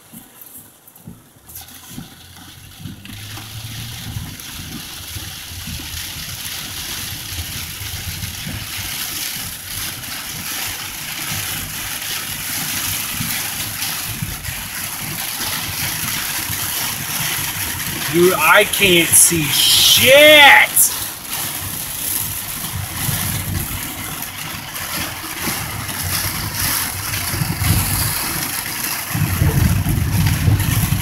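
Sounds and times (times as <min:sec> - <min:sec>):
heavy rain pelting a car: 0:00.0 - 0:31.0
tyres hissing through water: 0:02.6 - 0:07.8.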